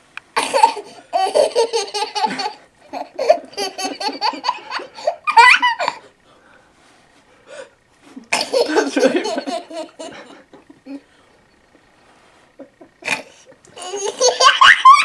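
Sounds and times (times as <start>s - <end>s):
baby laughing: 0.4s - 6.0s, 8.4s - 10.3s, 13.8s - 15.0s.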